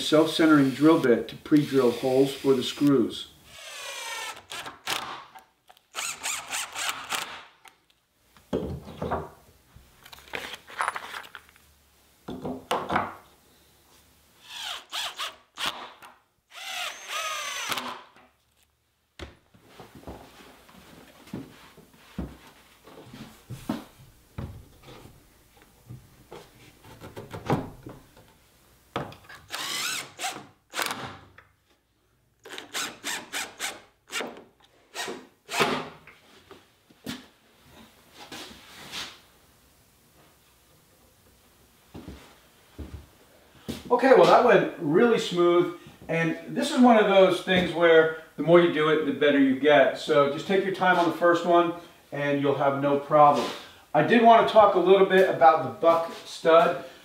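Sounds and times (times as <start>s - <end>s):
cordless drill running: 1.6s - 2.5s, 3.5s - 5.0s, 5.9s - 7.4s, 16.5s - 18.0s, 29.5s - 30.9s.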